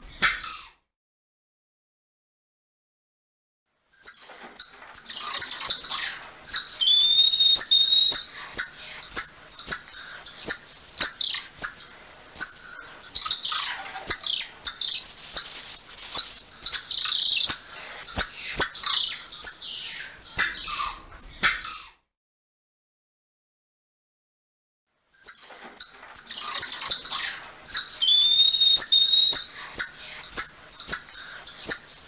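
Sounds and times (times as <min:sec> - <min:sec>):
monkey held whistles: 0:28.0 - 0:29.4.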